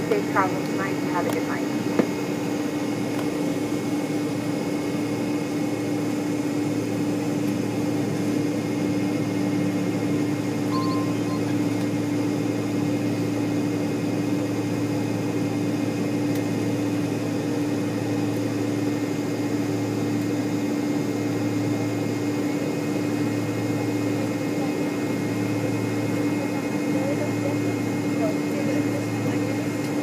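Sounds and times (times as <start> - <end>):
airliner cabin hum: 0.0 - 14.4.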